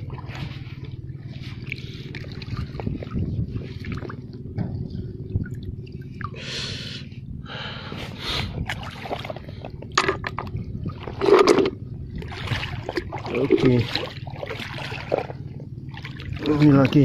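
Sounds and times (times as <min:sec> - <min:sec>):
steady low rumble: 0:00.0 - 0:17.0
close breathing: 0:06.4 - 0:08.6.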